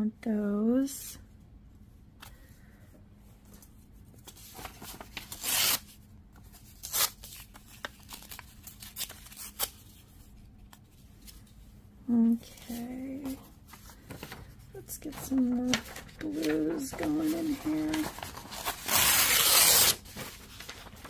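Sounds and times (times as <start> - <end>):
paper tearing: 4.6 - 6.0, 6.7 - 9.8, 15.7 - 21.0.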